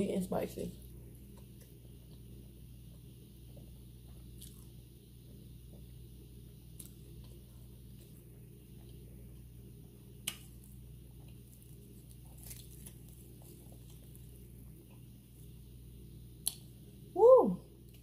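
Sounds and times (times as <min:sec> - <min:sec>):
chewing: 0:03.5 - 0:04.7, 0:10.2 - 0:15.1.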